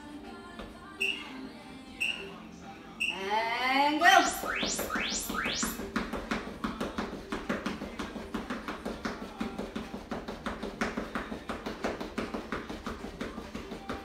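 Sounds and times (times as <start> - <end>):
fast footfalls on a floor: 5.7 - 14.0.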